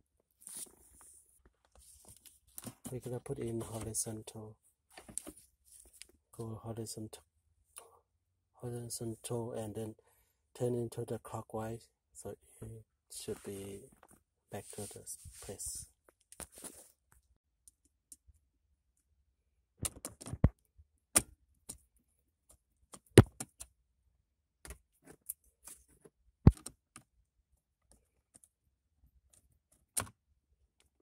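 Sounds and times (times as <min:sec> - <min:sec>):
plastic clicks and knocks: 0:19.8 - 0:21.8, 0:26.5 - 0:27.1.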